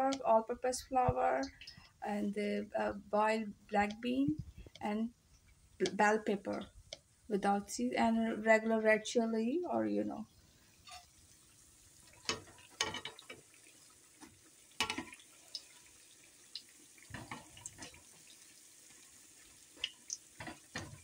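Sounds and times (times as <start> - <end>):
oil sizzling: 10.1 - 21.0.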